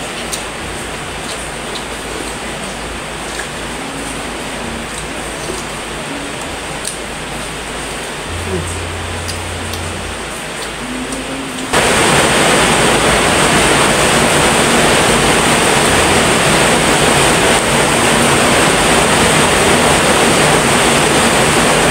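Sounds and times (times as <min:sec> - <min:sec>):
loud rushing hiss: 0:11.7 - 0:21.9.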